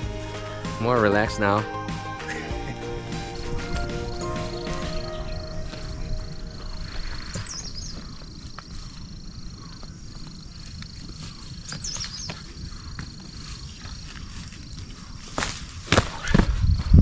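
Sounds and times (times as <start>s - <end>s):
insect trill: 0.5s - 15.4s
bird chirping: 0.8s - 10.5s, 11.2s - 13.0s
footsteps on dry grass: 1.9s - 16.9s
wind rumble: 2.3s - 17.0s.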